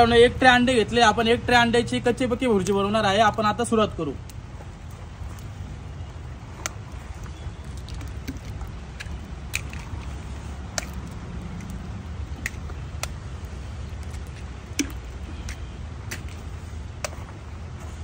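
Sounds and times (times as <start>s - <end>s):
eggs cracking: 6.5s - 17.2s.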